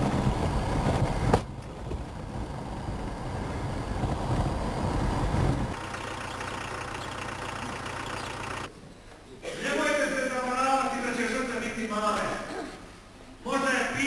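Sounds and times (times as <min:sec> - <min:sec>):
low rumbling noise: 0:00.0 - 0:08.7
steady outdoor hiss: 0:00.0 - 0:14.0.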